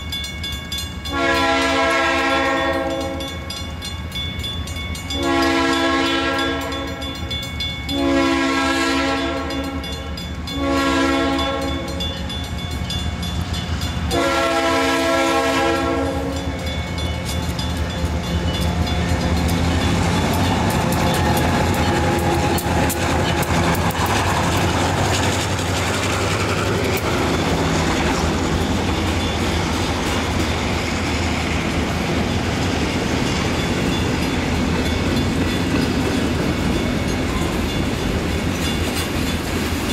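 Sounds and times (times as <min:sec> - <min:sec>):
diesel locomotive rumbling: 0:00.0 - 0:39.9
locomotive horn: 0:01.0 - 0:03.3, 0:05.2 - 0:07.0, 0:07.9 - 0:12.0, 0:14.1 - 0:16.5
wheels clicking over rail joints: 0:15.6 - 0:39.9.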